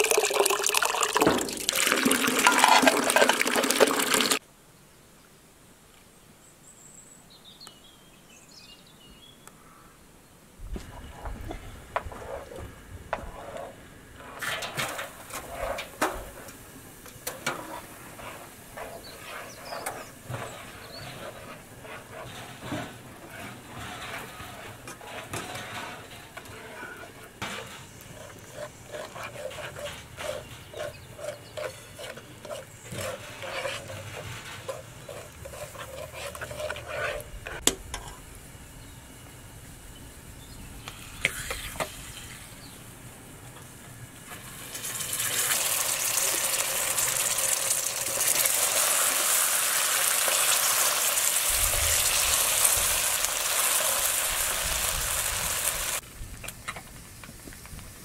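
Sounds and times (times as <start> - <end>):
metal spoon scraping a pan: 1.8 - 4.3, 11.0 - 38.2, 41.2 - 42.8, 45.3 - 56.0
butter sizzling in caramel: 17.2 - 25.5, 26.1 - 37.6, 44.3 - 56.0.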